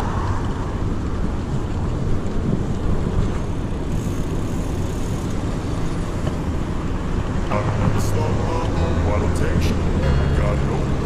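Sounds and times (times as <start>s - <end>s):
low rumble from bicycle ride: 0.0s - 11.0s
wind rushing over microphone: 0.0s - 11.0s.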